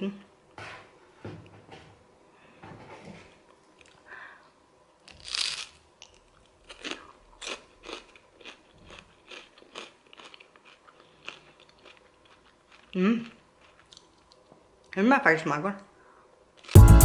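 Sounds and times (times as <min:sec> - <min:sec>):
crunching bite of crispbread: 0:05.0 - 0:14.4, 0:16.6 - 0:16.8
crunchy chewing: 0:05.0 - 0:14.5.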